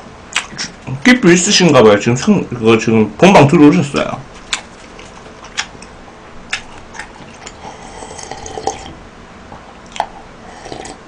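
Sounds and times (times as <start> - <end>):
person gulping a drink: 7.0 - 9.0, 9.9 - 11.0.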